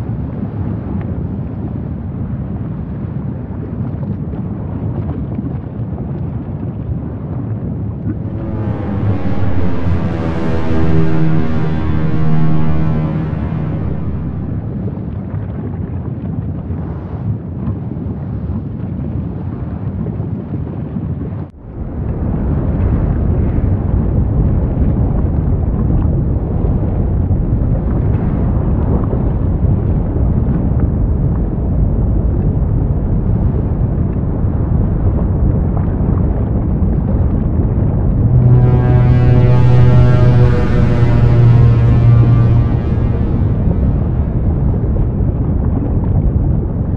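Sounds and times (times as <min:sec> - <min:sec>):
volcano low rumble: 0:07.9 - 0:16.0, 0:21.7 - 0:46.9.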